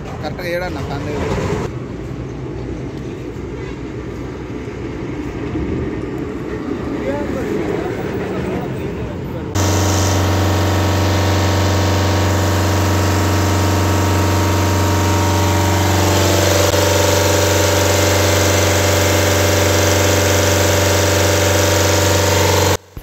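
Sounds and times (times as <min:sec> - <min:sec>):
diesel engine idling: 0:09.5 - 0:23.0.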